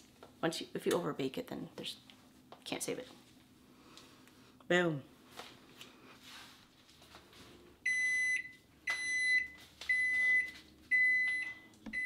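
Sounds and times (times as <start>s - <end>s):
microwave timer beeping: 7.8s - 12.0s.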